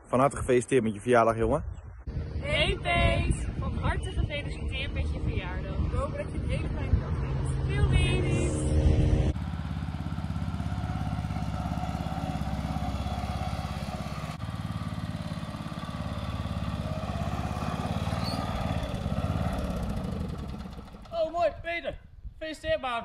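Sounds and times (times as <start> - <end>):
riding lawn mower engine: 7.5 - 21.3.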